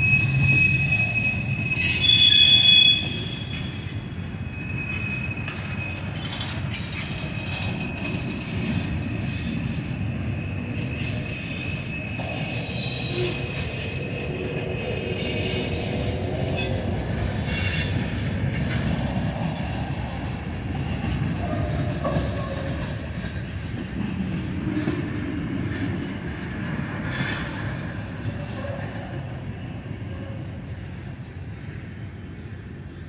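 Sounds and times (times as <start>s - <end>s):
thin wheel squeals: 0.0s - 14.3s, 27.1s - 33.0s
steel wheels rumbling on rails: 0.0s - 33.0s.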